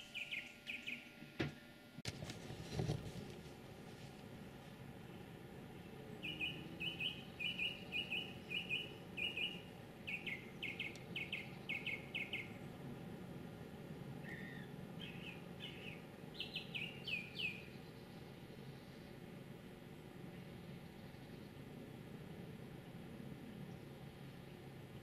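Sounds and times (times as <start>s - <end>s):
songbird singing: 0.0s - 1.2s, 4.9s - 12.8s, 14.1s - 19.4s, 20.3s - 21.8s.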